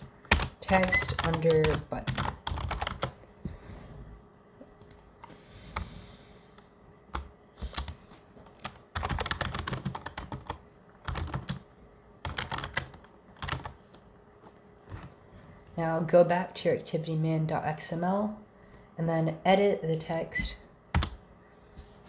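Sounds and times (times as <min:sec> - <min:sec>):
typing on computer keyboard: 0:00.0 - 0:03.2, 0:07.1 - 0:11.6, 0:12.2 - 0:13.8, 0:20.9 - 0:21.2.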